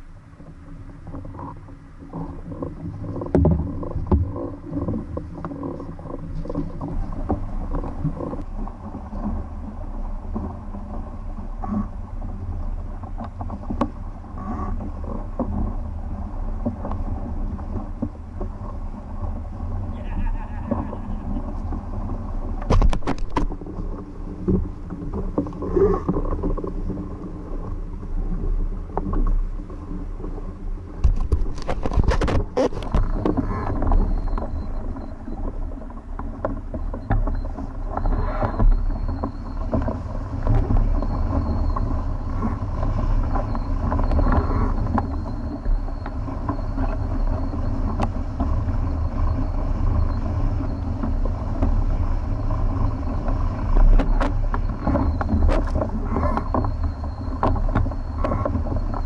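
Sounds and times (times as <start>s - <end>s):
wind buffeting microphone: 0.0s - 59.0s
water slapping against hull: 20.7s - 59.0s.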